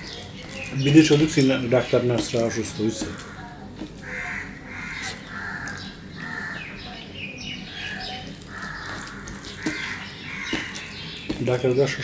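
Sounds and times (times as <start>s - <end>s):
crows cawing: 4.0s - 6.8s, 8.5s - 11.0s.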